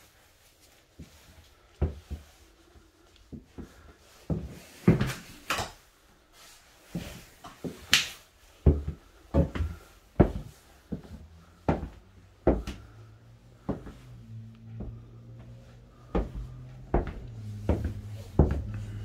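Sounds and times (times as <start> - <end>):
footsteps on floor: 0.9 - 2.5, 3.3 - 5.4, 6.9 - 7.9, 8.6 - 13.0, 13.6 - 19.0.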